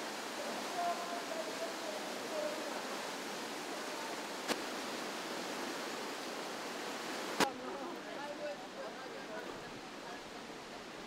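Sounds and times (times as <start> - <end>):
whitewater rapids rushing: 0.0 - 7.8.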